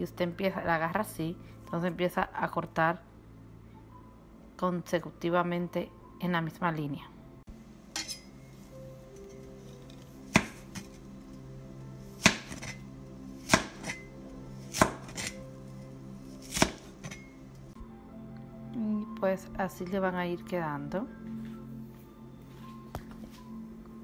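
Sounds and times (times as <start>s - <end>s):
cleaver chopping on plastic board: 10.3s - 10.9s, 12.2s - 12.8s, 13.4s - 14.0s, 14.7s - 15.4s, 16.4s - 17.2s.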